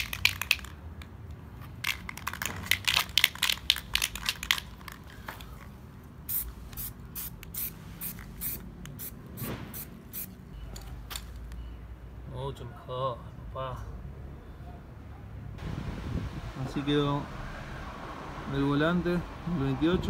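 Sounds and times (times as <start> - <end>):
spray can ball rattling: 0.0 - 0.8, 1.6 - 5.7, 6.3 - 10.4
spray paint hissing: 6.2 - 10.4.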